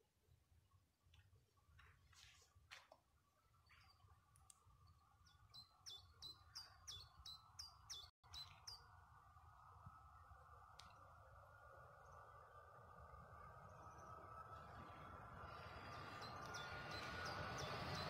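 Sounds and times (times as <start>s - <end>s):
faint steady hum: 0.0s - 18.0s
bird chirps: 3.5s - 9.0s, 13.4s - 18.0s.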